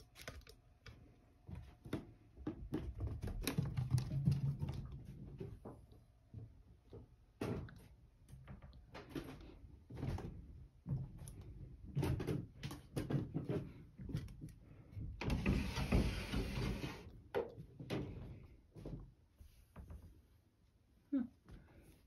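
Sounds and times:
sliding door rumbling open: 15.3s - 17.0s.

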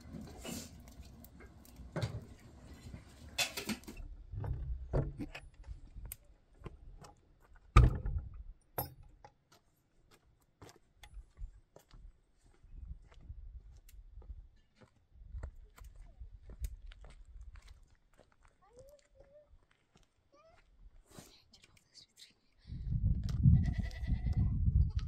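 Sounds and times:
wooden door shutting thump: 7.8s - 8.2s.

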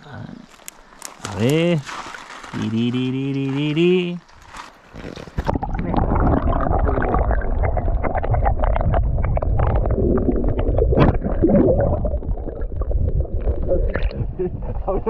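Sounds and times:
stream water gurgling underwater: 5.0s - 14.4s.

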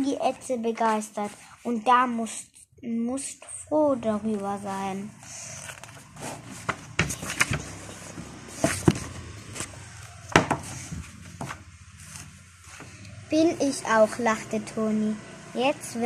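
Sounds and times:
paper rustles: 5.4s - 9.0s
book being handled: 5.4s - 13.0s.

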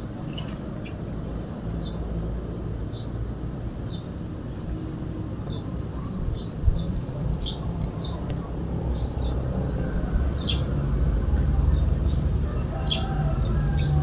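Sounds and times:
small bird chirping: 5.4s - 10.8s.

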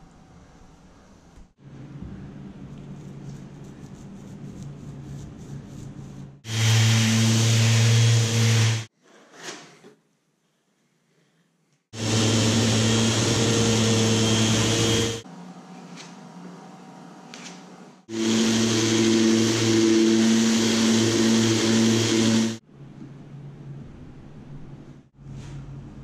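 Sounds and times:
machine motor humming: 12.0s - 15.2s, 18.1s - 22.6s.

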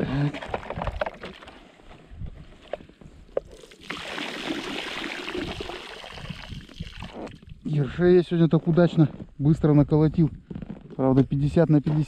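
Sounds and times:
water spilling and draining: 3.5s - 7.6s.

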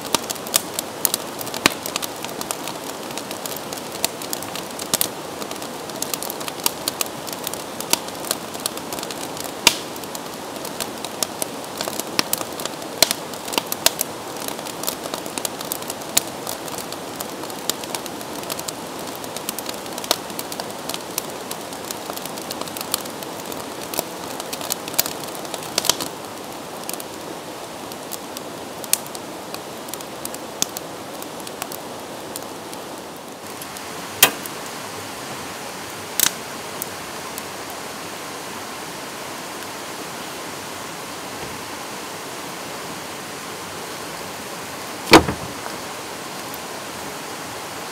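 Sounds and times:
wood fire crackling: 0.0s - 38.0s, 39.5s - 47.4s
creek water rushing: 33.4s - 47.9s.

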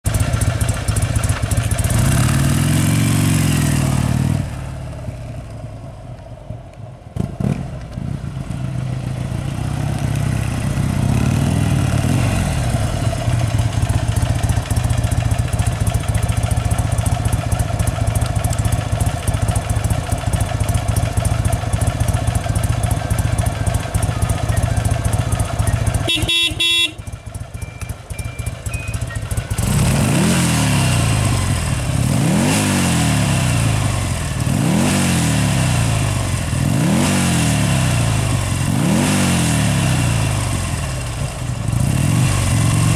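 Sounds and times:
motorcycle engine revving: 0.1s - 5.5s, 7.2s - 42.9s
motorcycle horn beeping: 24.4s - 29.8s.

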